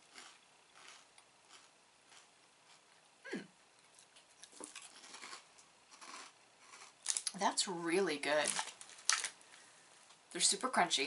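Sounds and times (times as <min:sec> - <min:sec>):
cracker being chewed: 0:00.0 - 0:03.0, 0:03.8 - 0:07.4.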